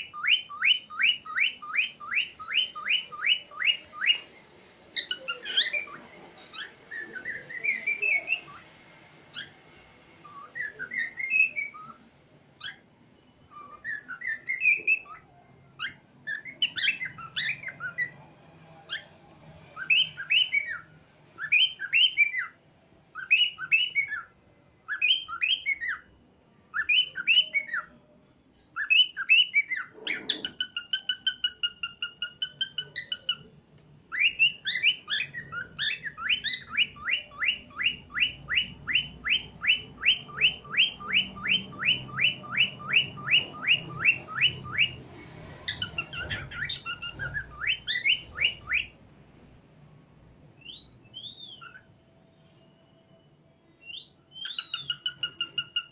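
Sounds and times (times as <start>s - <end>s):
cockatiel singing and whistling: 0.0s - 28.1s, 28.7s - 49.1s, 50.4s - 55.9s.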